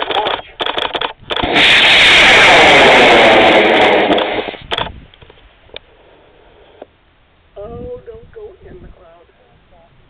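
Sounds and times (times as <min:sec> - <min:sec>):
rocket motor roaring: 0:01.2 - 0:05.2.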